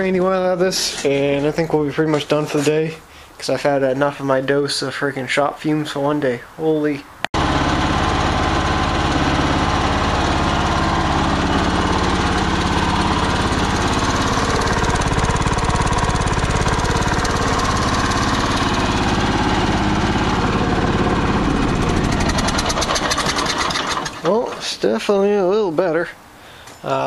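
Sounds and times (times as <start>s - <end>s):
riding mower engine running: 7.4s - 25.0s.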